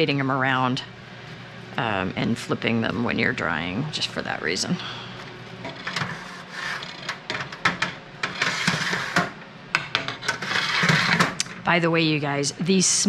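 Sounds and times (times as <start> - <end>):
metal racks scraping on runners: 5.6 - 11.4.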